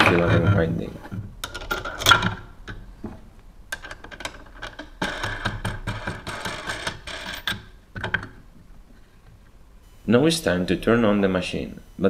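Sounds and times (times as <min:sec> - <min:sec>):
metal nut rattling on plastic: 0:03.7 - 0:08.4.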